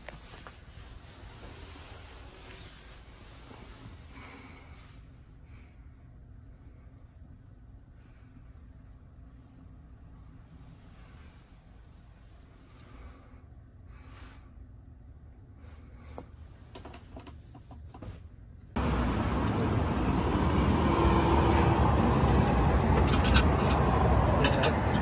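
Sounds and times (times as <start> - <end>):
faint camera rustling: 0.0 - 4.1
food stall ambience: 9.2 - 25.0.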